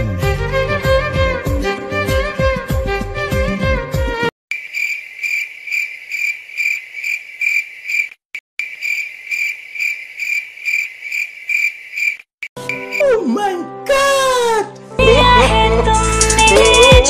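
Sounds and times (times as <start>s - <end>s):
cricket chirping: 4.5s - 13.1s.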